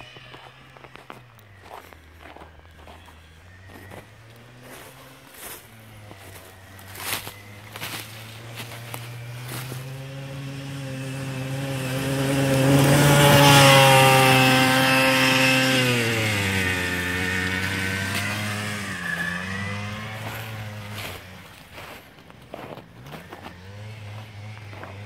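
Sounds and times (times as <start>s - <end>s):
buggy engine driving past: 0.0s - 25.0s.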